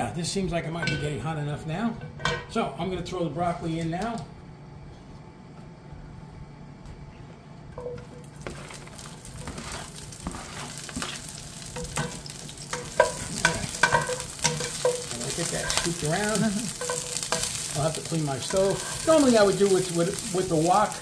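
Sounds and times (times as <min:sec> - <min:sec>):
spatula scraping and tapping pan: 0:07.8 - 0:21.0
vegetables sizzling in hot oil: 0:08.4 - 0:21.0.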